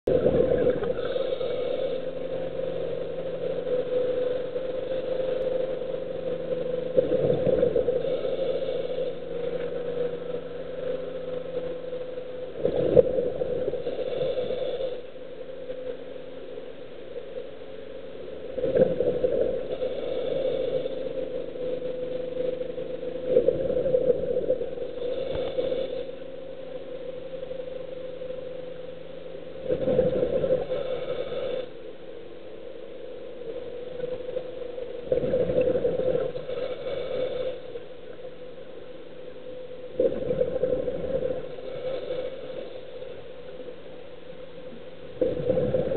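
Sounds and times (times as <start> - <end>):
steady hum: 0.0 - 45.9
exhaled bubbles gushing: 0.1 - 1.4, 29.6 - 31.0, 35.1 - 37.1, 40.0 - 41.5, 45.2 - 45.9
regulator breathing underwater: 0.8 - 3.1, 7.2 - 10.1, 13.7 - 15.1, 19.6 - 21.4, 24.8 - 26.2, 29.9 - 31.8, 35.1 - 37.8, 41.2 - 43.0.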